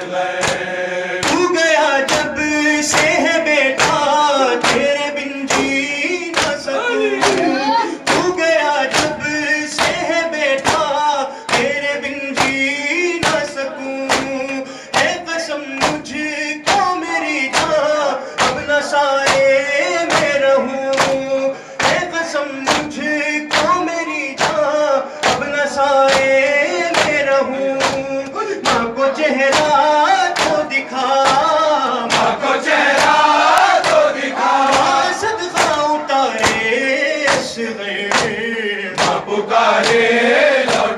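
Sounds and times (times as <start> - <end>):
man reciting into a microphone: 0.0 - 40.9
men chanting a lament: 0.0 - 40.9
rhythmic chest beating claps: 0.0 - 40.9.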